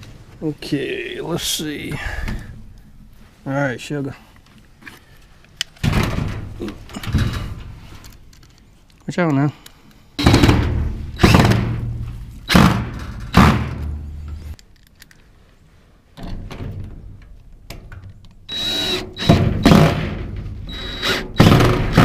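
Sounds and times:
cordless drill running: 18.5s - 19.7s, 20.7s - 22.0s.

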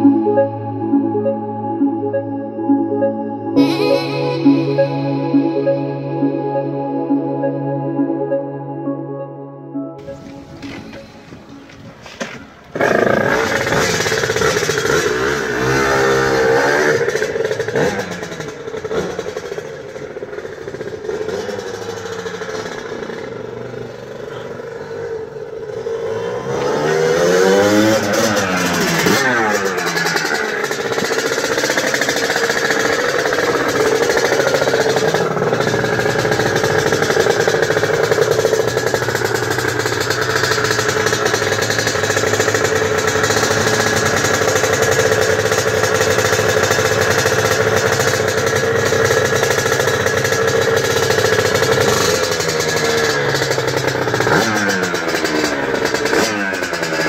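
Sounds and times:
two-stroke motorcycle engine revving: 10.0s - 57.0s.

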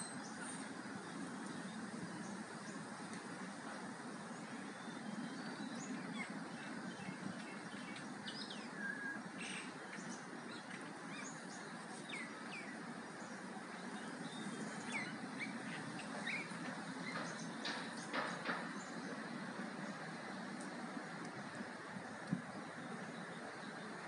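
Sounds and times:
low background noise: 0.0s - 24.0s.

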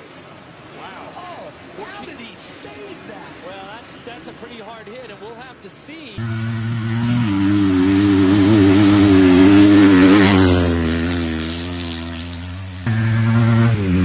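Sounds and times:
motocross bike passing by: 6.2s - 14.0s.

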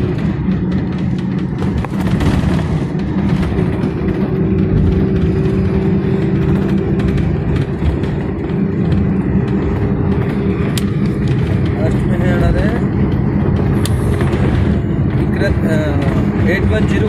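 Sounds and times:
bus body rattling: 0.0s - 17.0s
bus engine and road drone: 0.0s - 17.0s.

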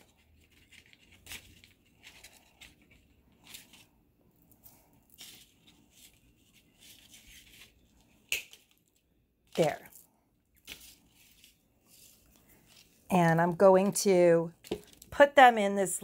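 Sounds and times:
flowers and paper bag rustling: 0.0s - 8.2s.

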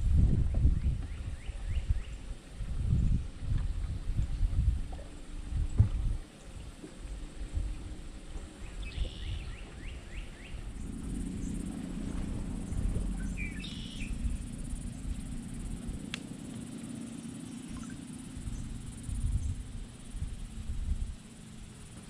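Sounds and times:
steady low hum: 0.0s - 22.0s
wind rumbling on microphone: 0.0s - 22.0s
rapid chirping call: 8.7s - 20.1s.

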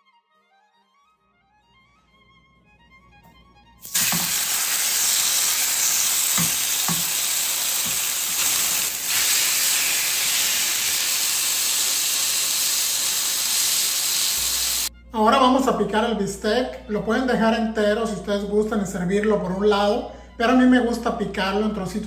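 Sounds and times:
meat sizzling in a pan: 3.8s - 14.9s.

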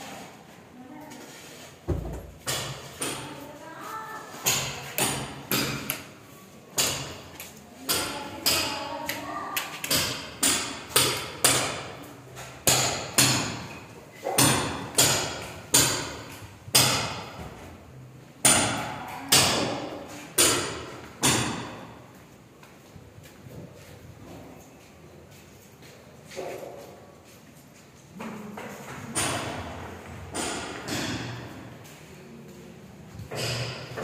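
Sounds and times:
sharp knocks echoing in concrete rooms: 1.8s - 3.6s, 4.3s - 22.3s, 28.1s - 31.9s, 33.1s - 34.0s.

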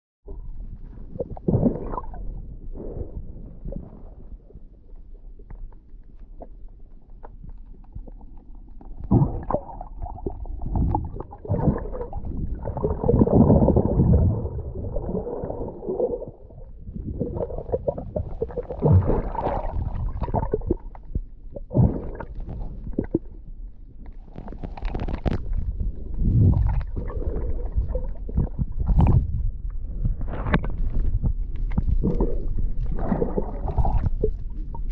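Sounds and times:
water rushing underwater: 0.3s - 5.5s, 7.9s - 23.6s, 24.3s - 34.9s
water splashing: 9.0s - 21.0s, 31.6s - 34.9s.

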